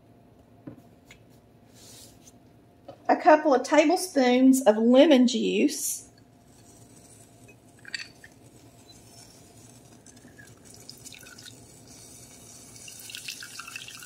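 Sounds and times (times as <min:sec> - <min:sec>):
juice dripping: 0:07.7 - 0:14.0.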